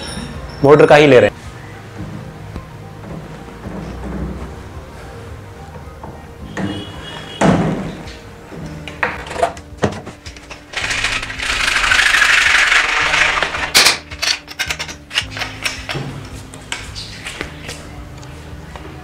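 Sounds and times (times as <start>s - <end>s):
faint background music: 0.0s - 19.0s
clicks and knocks of pipe handling: 13.7s - 16.9s.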